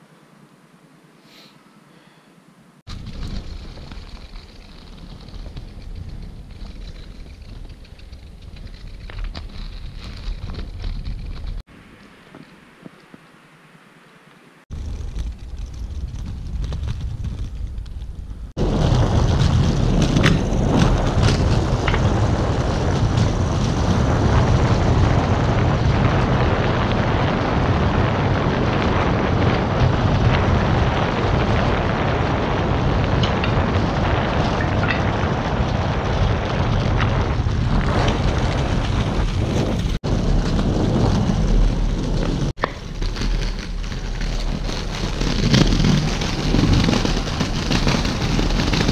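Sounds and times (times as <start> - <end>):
skate wheels rolling on stone: 2.9 - 13.4, 14.3 - 48.9
wind on microphone: 14.7 - 48.9.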